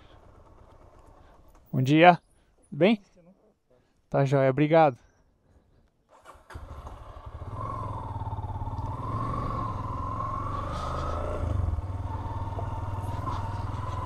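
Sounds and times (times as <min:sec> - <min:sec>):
motorcycle engine riding: 0:00.0 - 0:01.8, 0:06.3 - 0:14.0.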